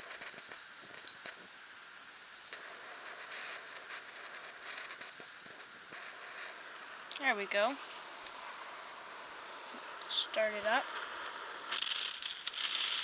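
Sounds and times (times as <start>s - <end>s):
gas torch flame hissing: 0.0s - 13.0s.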